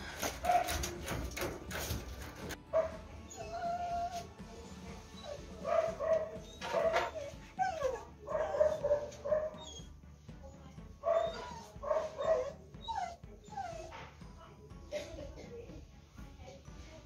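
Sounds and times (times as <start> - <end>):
dog whining and yipping: 2.8 - 4.3, 5.0 - 9.9, 11.0 - 14.2.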